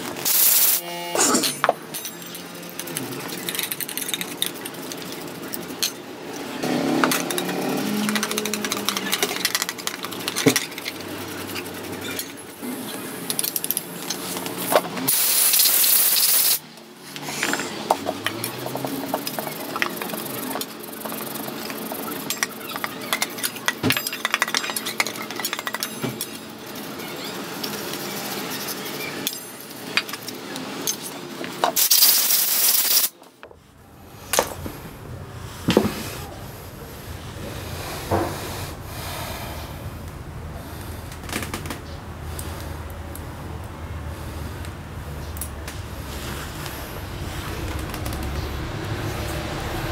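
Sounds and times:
loud hissing bursts: 15.1 - 16.6, 31.8 - 33.1.

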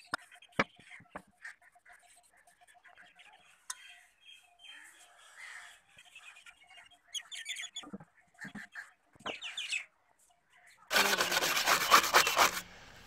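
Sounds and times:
wire brush scrubbing metal: 10.9 - 12.7.

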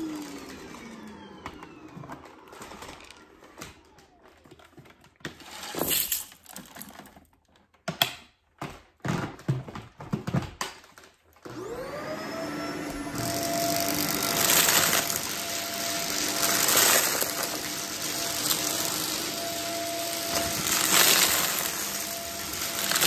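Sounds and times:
vacuum cleaner motor whining: 0.0 - 5.9, 11.4 - 23.0.

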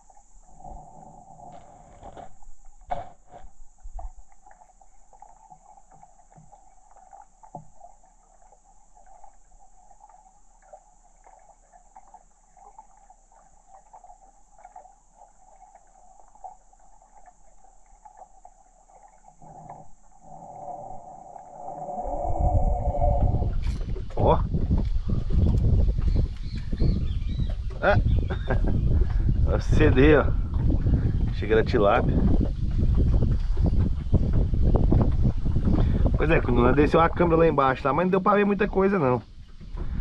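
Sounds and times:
chorus of calling animals: 19.4 - 23.8
low rumble: 20.2 - 36.2.

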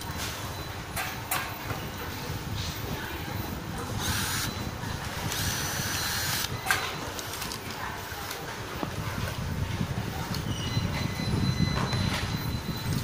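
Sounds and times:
steady workshop noise: 0.0 - 13.0
electric screwdriver running: 4.0 - 4.5, 5.3 - 6.5.

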